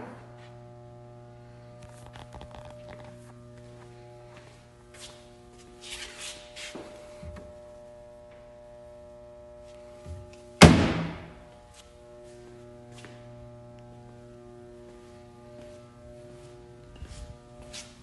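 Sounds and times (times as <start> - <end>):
door slamming shut with thunk: 10.6 - 11.4.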